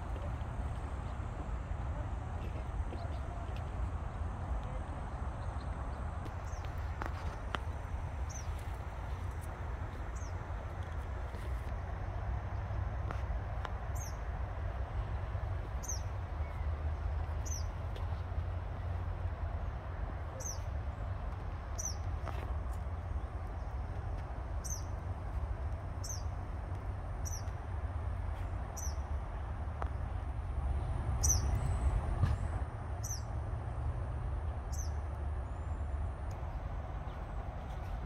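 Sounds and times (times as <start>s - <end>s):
steady low rumble: 0.0s - 38.0s.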